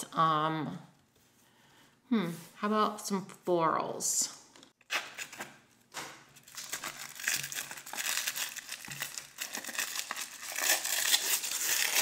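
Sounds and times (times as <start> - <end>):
packaging wrapper crinkling: 4.9 - 12.0.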